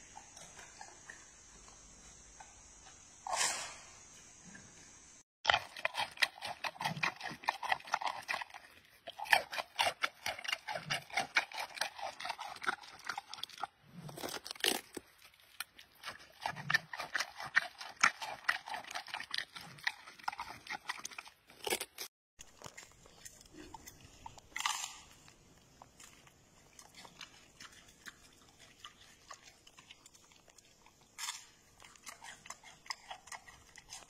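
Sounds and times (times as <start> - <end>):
panda crunching bamboo: 5.5 - 25.4.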